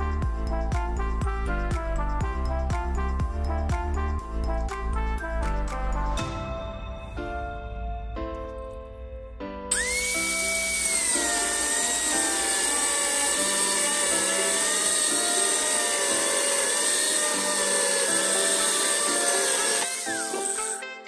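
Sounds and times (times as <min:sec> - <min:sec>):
angle grinder cutting metal: 0:09.7 - 0:21.0.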